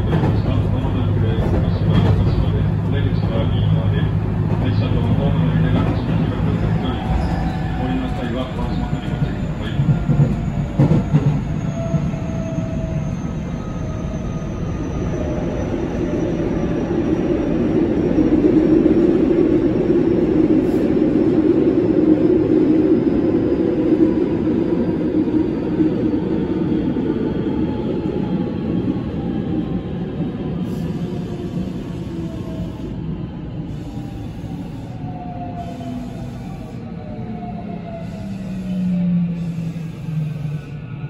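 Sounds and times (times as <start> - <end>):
wheel and track rumble: 0.0 - 12.2.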